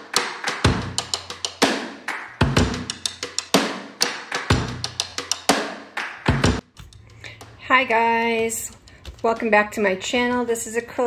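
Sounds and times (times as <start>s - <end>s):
sharp percussive hits: 0.0s - 6.7s.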